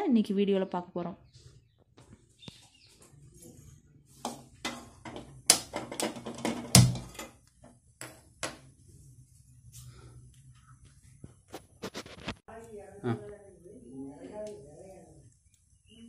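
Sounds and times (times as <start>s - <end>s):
metallic knocks: 4.2s - 7.4s.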